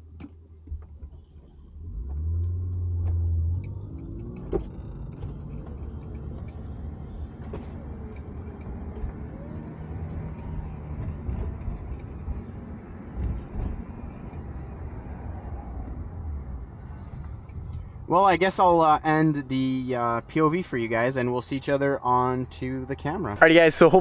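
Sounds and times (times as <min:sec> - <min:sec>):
road noise: 0:00.0 - 0:24.0
car engine accelerating: 0:00.7 - 0:18.1.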